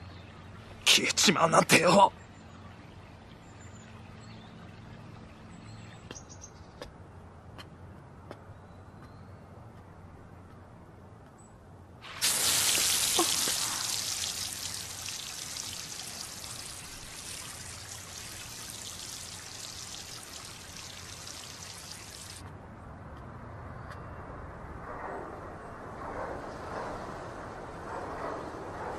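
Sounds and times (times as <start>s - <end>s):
fountain water splashing: 12.0s - 22.4s.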